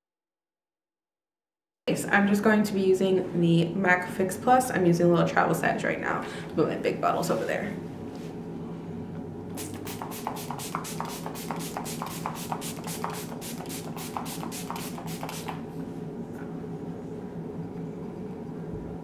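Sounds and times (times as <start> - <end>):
spray bottle spritzing: 9.6 - 15.6.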